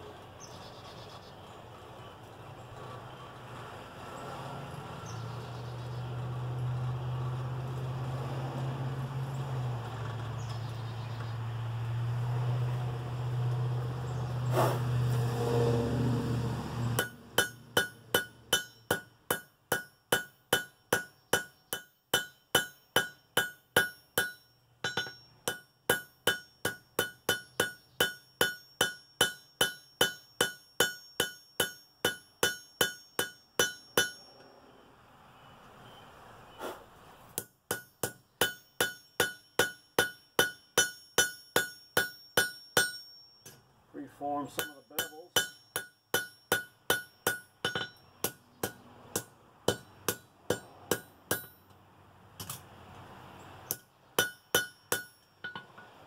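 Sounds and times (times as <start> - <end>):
hammer striking steel on anvil: 16.9 - 34.4, 37.4 - 43.6, 44.4 - 51.8, 53.7 - 56.0.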